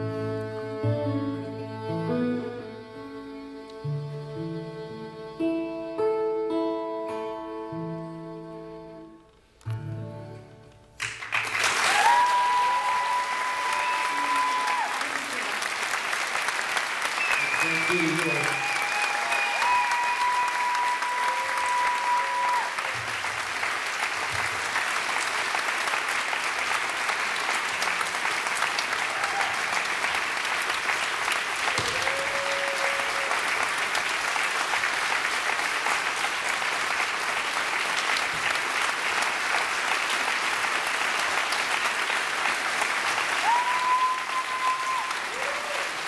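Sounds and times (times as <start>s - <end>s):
audience applauding: 11.0s - 46.0s
short whistles: 17.2s - 18.3s.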